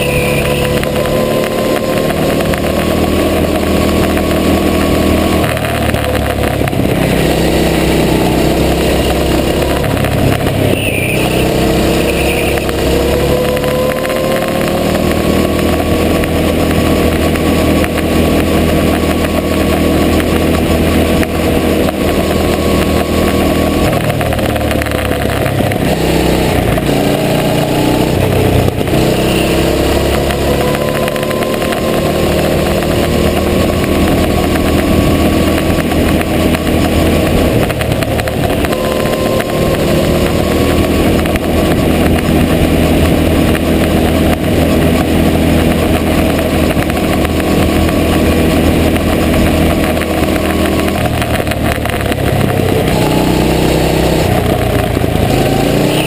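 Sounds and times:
go-kart engine revving: 0.0s - 56.0s.

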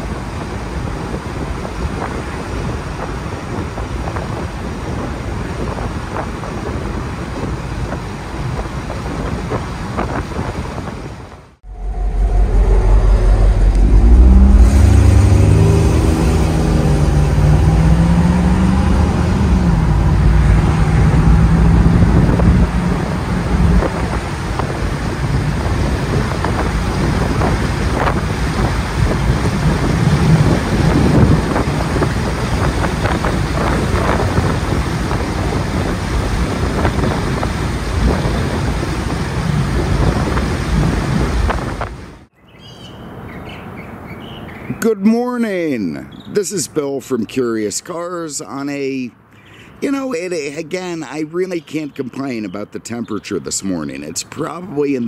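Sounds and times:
road and wind noise: 0.0s - 55.0s
car engine accelerating: 11.6s - 42.3s.

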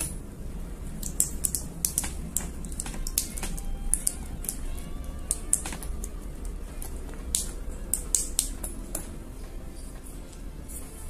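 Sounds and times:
steady low hum: 0.0s - 11.0s
wire clicking into motor slots: 1.0s - 9.1s.

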